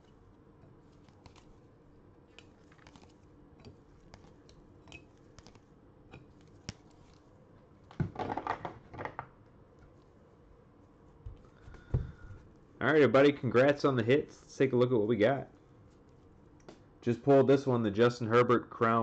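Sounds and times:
plastic clatter: 7.9s - 9.3s.

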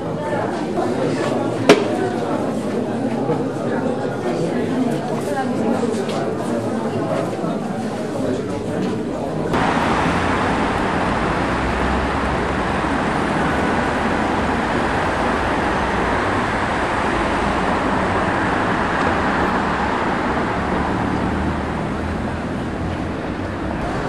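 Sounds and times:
road traffic rumble: 9.5s - 24.0s.

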